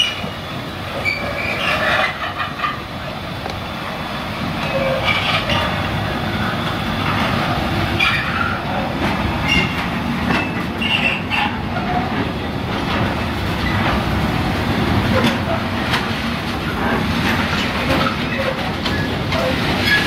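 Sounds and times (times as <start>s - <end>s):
train wheels rumbling and clicking: 0.0s - 20.0s
wheel squeals: 0.9s - 2.7s, 4.6s - 5.8s, 8.0s - 8.8s, 9.4s - 12.2s, 17.8s - 20.0s.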